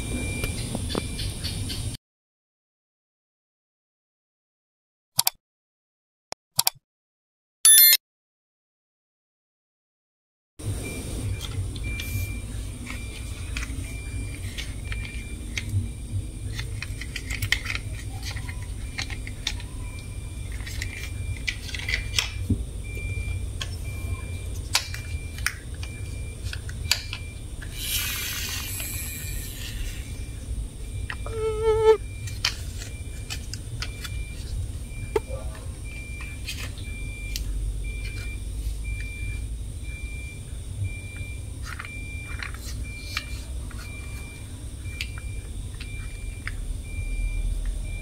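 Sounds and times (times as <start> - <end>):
plastic toy cars clicking: 16.5 - 22.4, 41.6 - 44.0.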